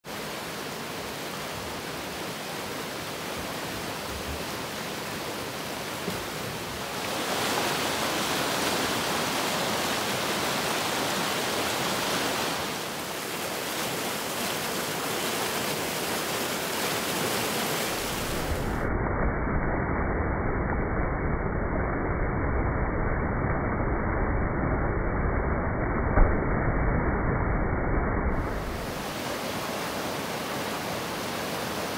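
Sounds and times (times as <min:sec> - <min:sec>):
floodwater rushing: 0:00.0 - 0:18.9, 0:28.3 - 0:31.9.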